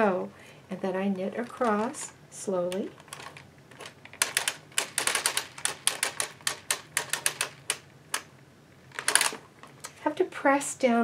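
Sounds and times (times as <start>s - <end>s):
knitting machine needles clicking: 1.4s - 8.3s, 8.9s - 9.4s.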